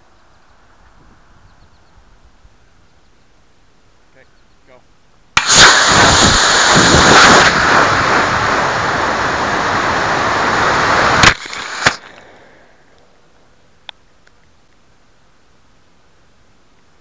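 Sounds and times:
ejection charge bang: 5.4 - 8.6
rocket crashing into ground: 5.4 - 8.9
rocket motor rushing hiss: 5.4 - 12.8.

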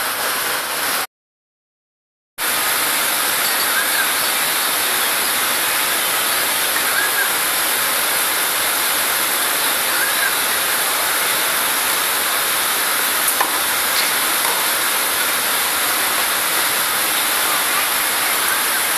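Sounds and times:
loud steady hissing: 0.0 - 1.1, 2.4 - 18.9.

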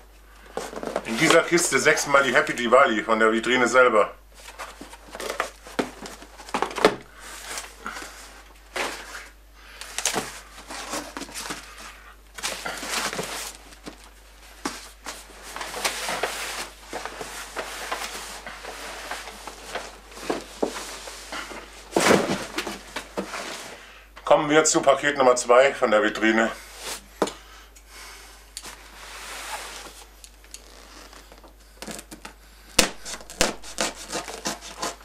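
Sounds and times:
cardboard scraping and rustling: 0.5 - 2.0, 4.4 - 9.4, 10.0 - 23.8
cardboard boxes knocking: 4.8 - 7.1.

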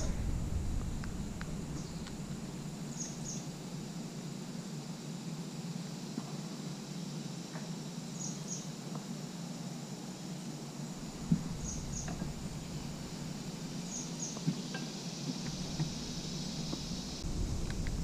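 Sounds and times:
steady low hum: 0.0 - 4.7, 10.8 - 18.0.

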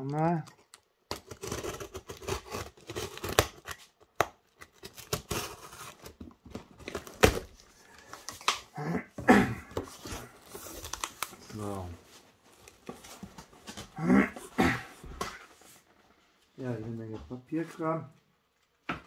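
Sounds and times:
tearing tape and cardboard: 0.3 - 7.7
box cutter slicing tape: 1.1 - 3.8, 4.6 - 6.2.

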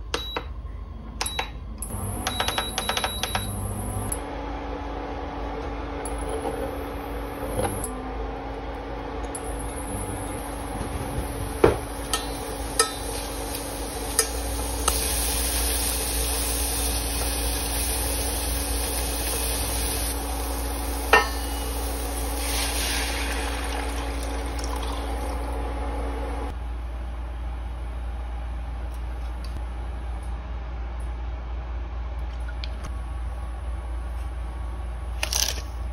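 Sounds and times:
steady hum: 0.0 - 35.2
onions sizzling in hot oil: 11.9 - 24.2.

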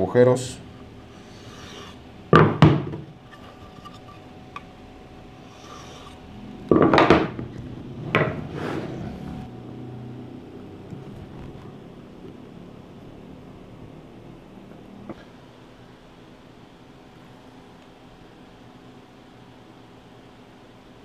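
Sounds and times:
wood knocking on a workbench: 2.3 - 3.1, 6.7 - 7.5, 8.1 - 8.4.

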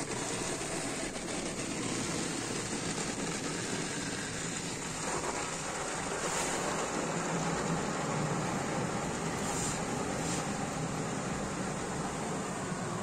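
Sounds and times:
car wash water spray: 8.2 - 12.9.

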